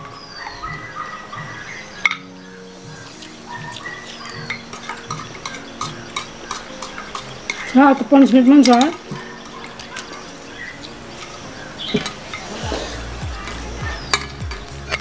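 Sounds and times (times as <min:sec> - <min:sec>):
chopsticks clicking on plates: 0:03.2 - 0:12.5.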